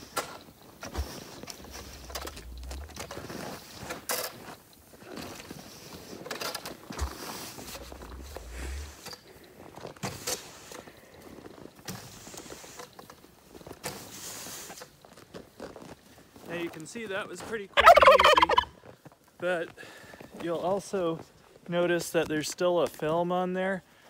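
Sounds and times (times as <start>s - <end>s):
snow sliding off and falling: 0.5s - 9.1s
broom scraping snow on glass: 7.0s - 9.1s.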